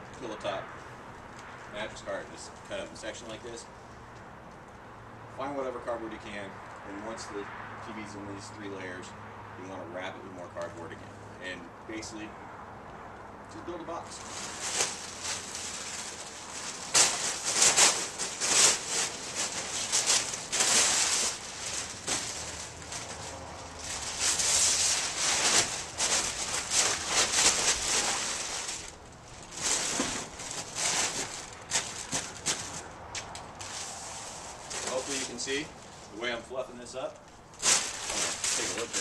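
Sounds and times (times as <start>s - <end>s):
paper crumpling and rustling: 14.2s - 32.9s, 33.6s - 35.6s, 37.6s - 39.0s.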